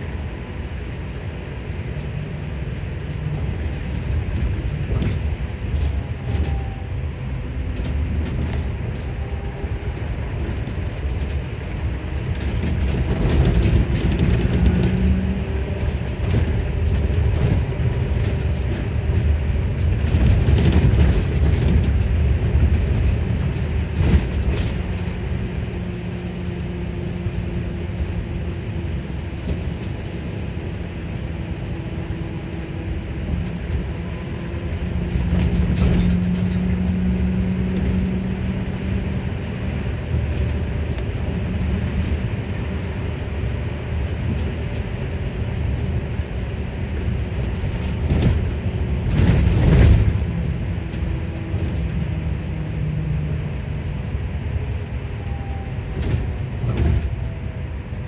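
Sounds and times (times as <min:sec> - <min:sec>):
road and tyre rumble: 0:00.0 - 0:58.0.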